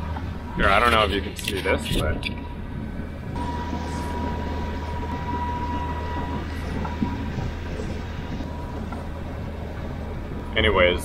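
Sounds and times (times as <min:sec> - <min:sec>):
boat engine drone: 0:00.0 - 0:11.0
wind and water wash: 0:00.0 - 0:11.0
thin ringing tone: 0:03.4 - 0:10.8.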